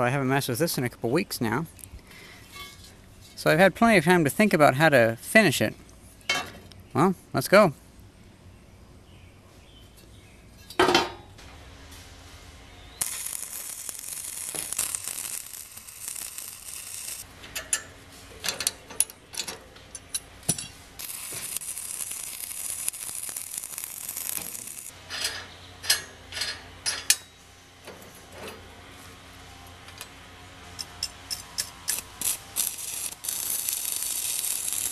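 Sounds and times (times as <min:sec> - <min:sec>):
welding arc crackling and hissing: 0:12.8 - 0:17.3, 0:20.5 - 0:25.0, 0:30.8 - 0:34.9.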